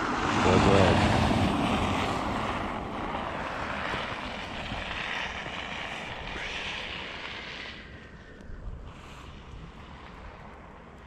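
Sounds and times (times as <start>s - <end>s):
tyres hissing over snow: 3.1s - 10.7s.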